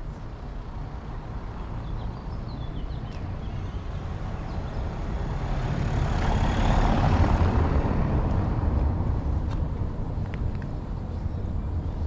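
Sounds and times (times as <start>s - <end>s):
vehicle passing close by: 3.8s - 9.8s.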